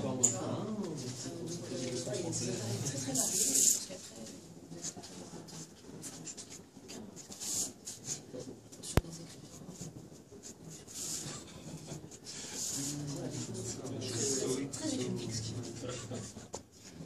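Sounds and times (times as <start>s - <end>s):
marker pen scratching on card: 4.8s - 14.3s.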